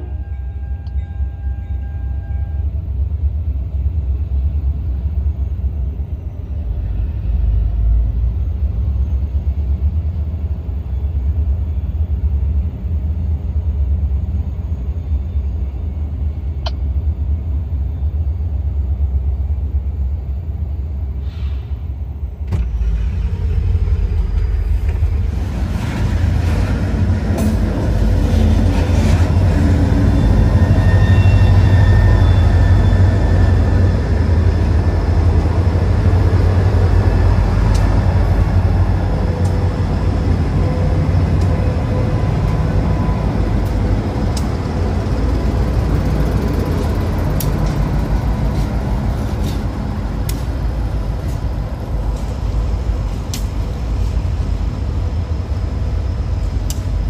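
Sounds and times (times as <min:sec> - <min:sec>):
low vehicle rumble: 0:15.9 - 0:57.0.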